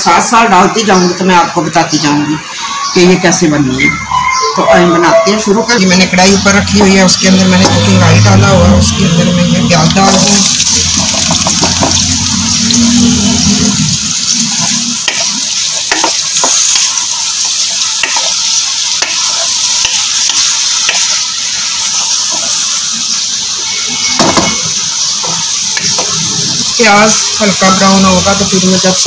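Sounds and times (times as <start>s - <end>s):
onions sizzling in oil: 0.0s - 29.0s
wooden spoon scraping a pan: 10.1s - 15.3s.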